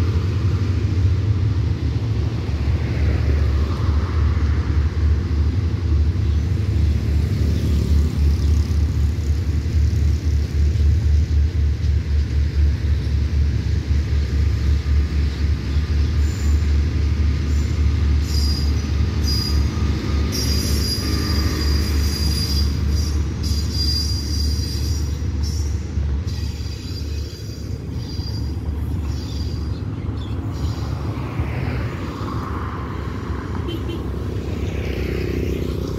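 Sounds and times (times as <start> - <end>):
passenger coaches rumbling past: 0.0 - 35.9
train wheels squealing: 16.0 - 31.2.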